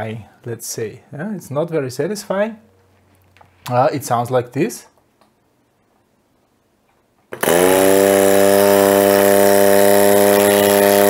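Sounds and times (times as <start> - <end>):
air compressor humming and hissing: 7.4 - 11.0.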